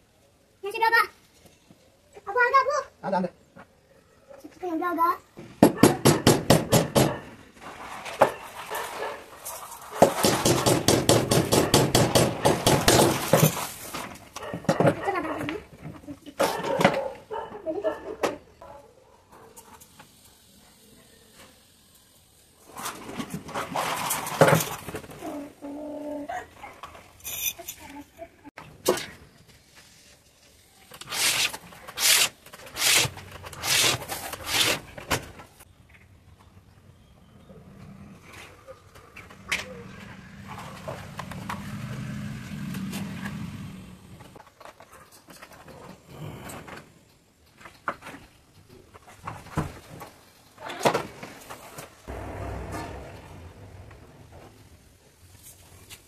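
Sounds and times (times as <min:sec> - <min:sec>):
knife scoring laminate sheet: 0:31.0 - 0:34.8.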